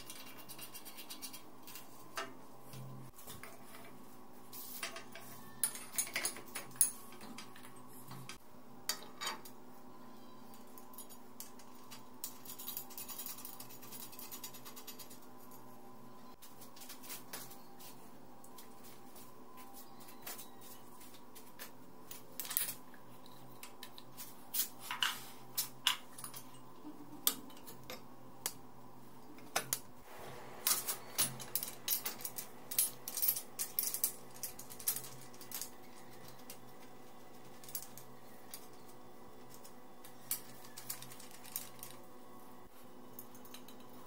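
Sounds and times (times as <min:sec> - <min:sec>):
metal parts clinking and tapping: 0:04.8 - 0:08.3, 0:30.7 - 0:36.6.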